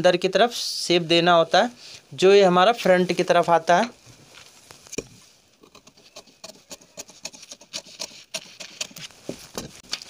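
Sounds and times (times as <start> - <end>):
scissors snipping paper: 5.8 - 10.0
paper rustling and sliding: 7.3 - 10.0.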